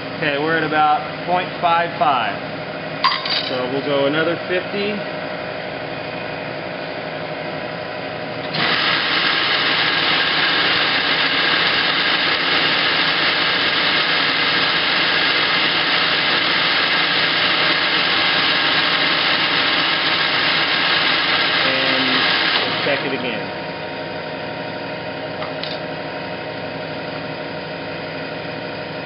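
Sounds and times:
metal lathe running: 8.4 - 24.7.

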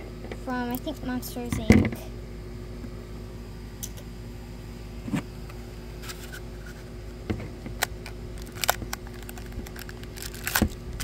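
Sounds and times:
steady low hum: 0.0 - 11.0
plastic packaging clicks and crinkles: 7.8 - 11.0.

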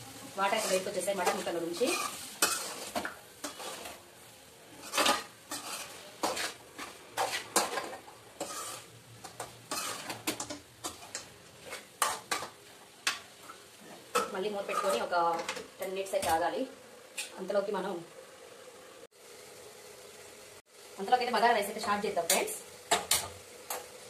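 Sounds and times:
meat sizzling: 0.0 - 24.0
metal spoon scraping a pan: 0.3 - 4.0, 4.7 - 16.4.

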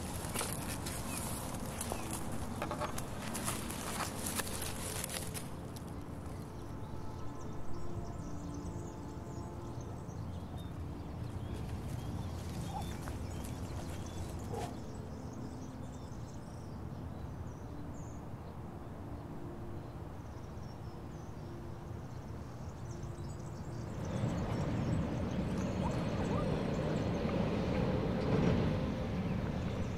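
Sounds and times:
truck approaching: 23.9 - 29.9
bird chirps: 24.0 - 27.3.

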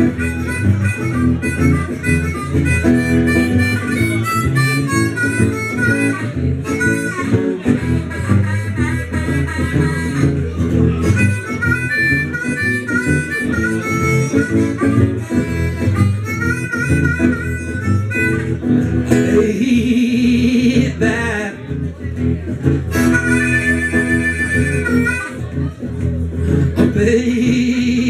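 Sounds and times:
blues harmonica solo: 0.0 - 19.4, 22.6 - 25.7
strummed acoustic guitar: 0.0 - 28.0.

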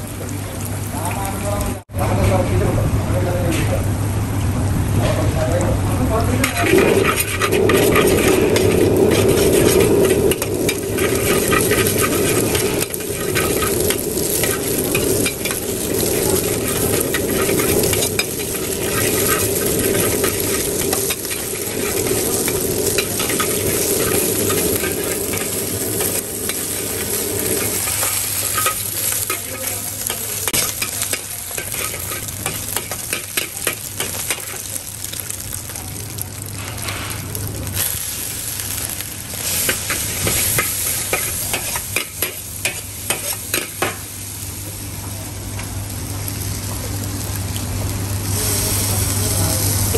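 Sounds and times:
steady hum: 2.0 - 49.9
food sizzling in oil: 6.2 - 49.9
metal ladle scraping wok: 6.4 - 34.6.

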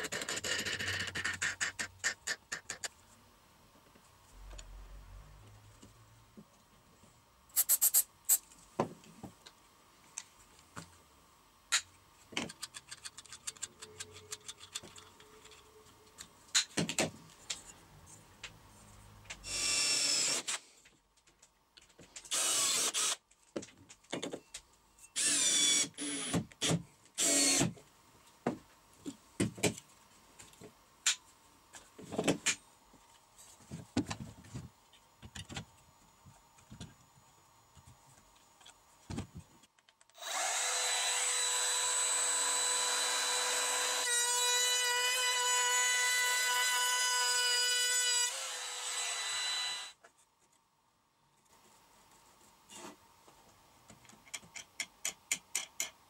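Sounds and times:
tools clicking and knocking: 11.7 - 17.2, 53.9 - 56.0
cordless drill drilling into metal: 22.3 - 23.2, 25.2 - 26.3, 27.2 - 27.7, 40.2 - 44.1, 48.3 - 50.0
trim router whining: 40.2 - 50.0.

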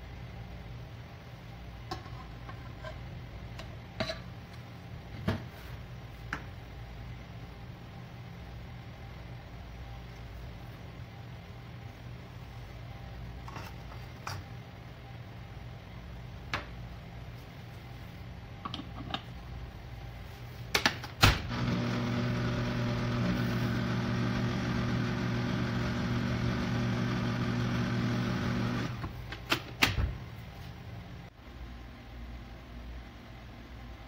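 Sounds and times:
stand mixer motor humming: 21.5 - 29.0.

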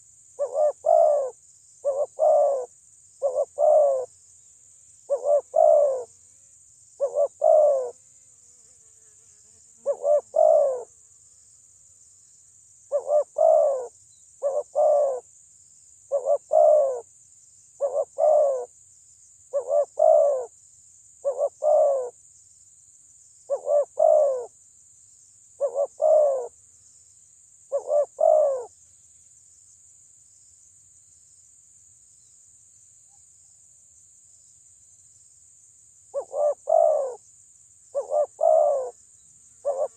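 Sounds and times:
dove cooing: 0.0 - 4.1, 5.1 - 6.1, 7.0 - 8.0, 9.8 - 10.9, 12.9 - 15.2, 16.1 - 17.0, 17.8 - 18.7, 19.5 - 20.5, 21.2 - 22.1, 23.5 - 24.5, 25.6 - 26.5, 27.7 - 28.7, 36.2 - 37.2, 38.0 - 39.0, 39.6 - 39.9.

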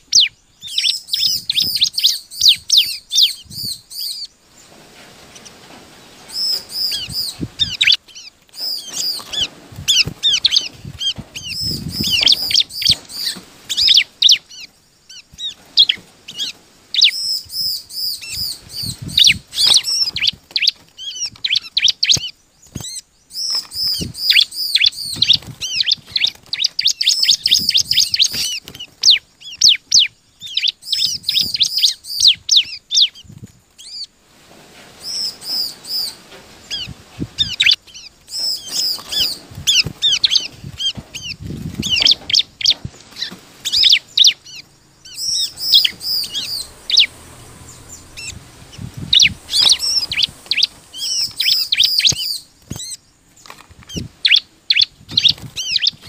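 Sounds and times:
bird singing high repeated chirps: 0.0 - 4.3, 41.9 - 53.1.

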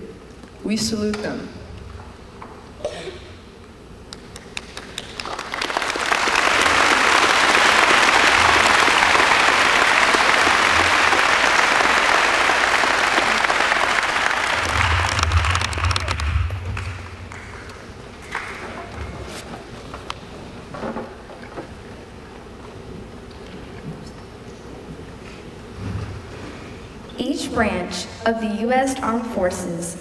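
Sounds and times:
audience applause: 4.2 - 19.4.

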